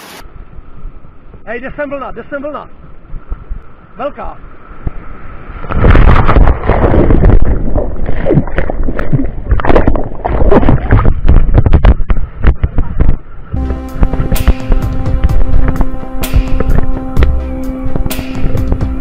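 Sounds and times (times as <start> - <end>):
breaking wave churning and splashing: 5.4 - 11.3.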